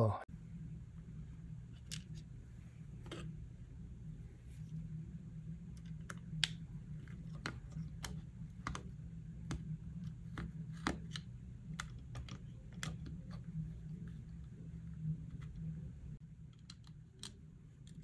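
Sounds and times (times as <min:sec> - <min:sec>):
screwdriver clicking on plastic: 0:05.9 - 0:13.4.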